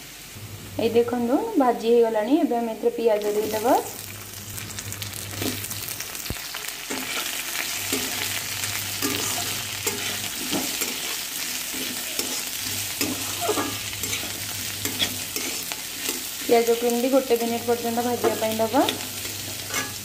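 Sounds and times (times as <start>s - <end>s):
onions sizzling in hot oil: 0.0s - 20.0s
metal spatula scraping: 6.9s - 20.0s.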